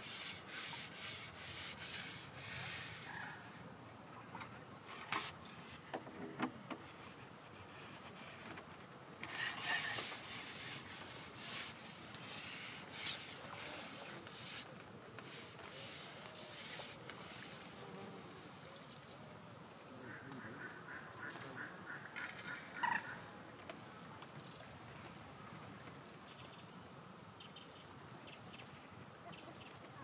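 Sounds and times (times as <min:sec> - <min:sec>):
rubbing and scraping: 0:00.0 - 0:03.4, 0:09.2 - 0:14.6, 0:15.2 - 0:17.7.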